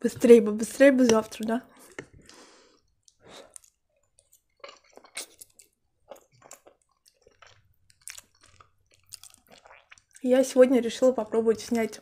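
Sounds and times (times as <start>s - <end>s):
person chewing wetly: 1.6s - 10.3s.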